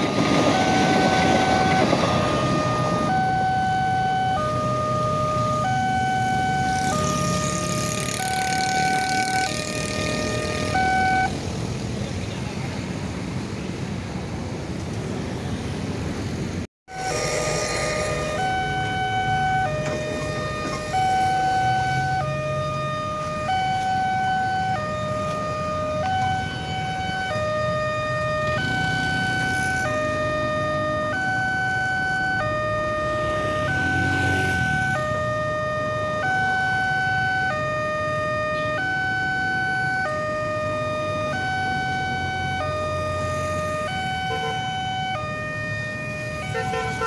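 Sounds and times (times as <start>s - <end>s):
two-tone crossing alarm: 0.0s - 11.3s, 16.9s - 47.0s
idling vehicle engines: 3.4s - 16.0s.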